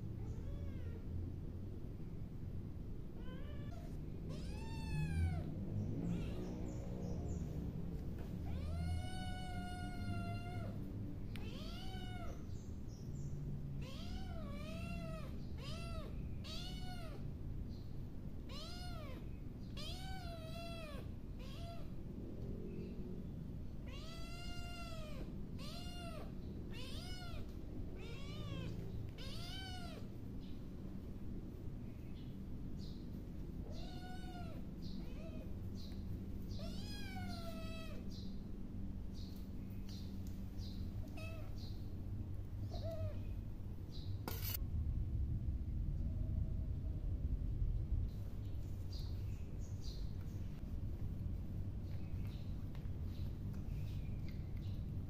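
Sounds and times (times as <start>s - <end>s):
low steady rumble: 0.0s - 55.0s
cat meowing: 3.2s - 5.5s, 8.4s - 10.8s, 11.4s - 12.4s, 13.8s - 17.2s, 18.5s - 22.0s, 23.8s - 30.1s, 33.7s - 35.5s, 36.5s - 38.1s, 41.0s - 41.6s.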